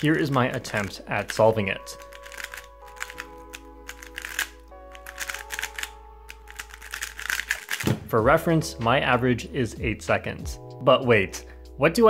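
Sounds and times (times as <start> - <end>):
puzzle cube layers clicking: 0.0 - 7.9
background music of held chords: 0.0 - 12.0.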